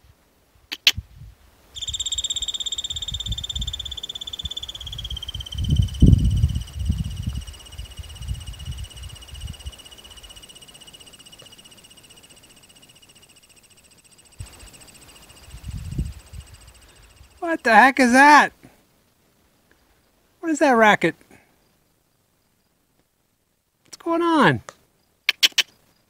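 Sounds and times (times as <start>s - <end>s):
squirrel high-pitched trill: 1.8s - 17.9s.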